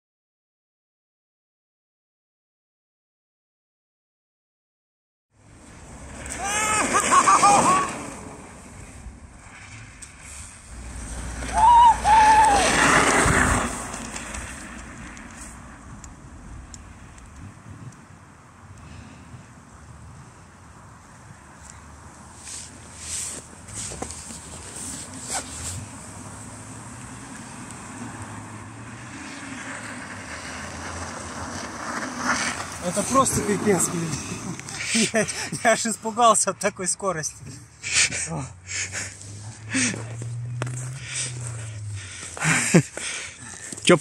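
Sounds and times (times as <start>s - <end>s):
wind noise on microphone: 11.9s - 20.6s
tyres hissing over snow: 22.3s - 27.6s, 31.9s - 36.2s, 37.7s - 44.0s.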